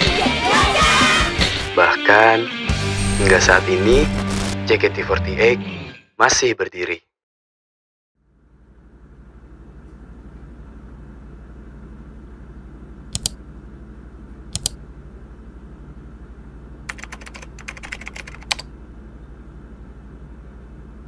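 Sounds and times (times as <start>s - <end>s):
steady low hum: 8.2s - 21.0s
mouse double clicks: 13.1s - 13.4s, 14.5s - 14.8s
fast keyboard typing: 16.9s - 18.7s.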